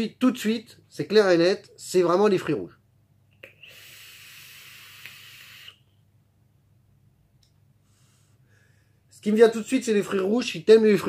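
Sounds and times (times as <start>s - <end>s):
e-cigarette hissing: 3.4s - 5.9s
vapour exhaled hiss: 3.4s - 5.9s.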